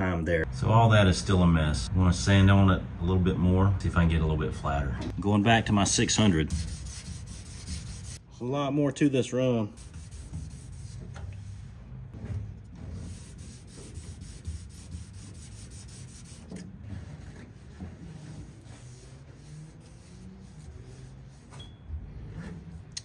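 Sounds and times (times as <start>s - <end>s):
sandpaper rubbing on metal: 6.0s - 8.2s, 9.8s - 11.1s, 12.8s - 21.6s.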